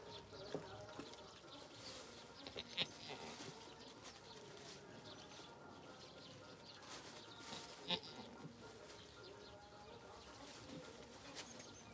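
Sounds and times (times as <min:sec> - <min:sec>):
faint outdoor background: 0:00.0 - 0:11.9
goat bleating: 0:02.4 - 0:03.3, 0:07.6 - 0:08.4.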